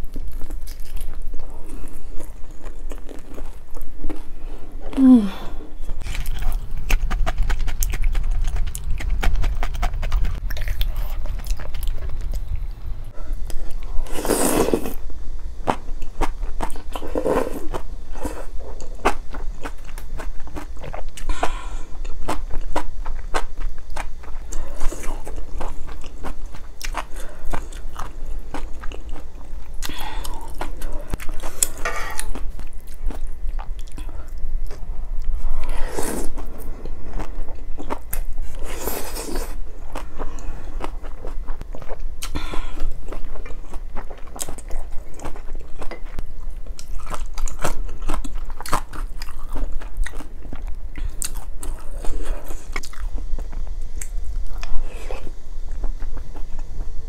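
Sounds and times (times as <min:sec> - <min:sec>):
wet chewing and mouth clicks: 0:06.0 - 0:12.6, 0:18.7 - 0:35.4
slurping noodles and broth: 0:14.0 - 0:15.0, 0:35.5 - 0:36.5.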